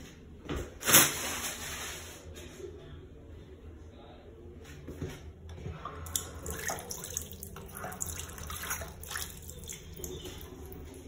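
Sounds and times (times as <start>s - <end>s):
faucet water running into basin: 5.9s - 11.0s.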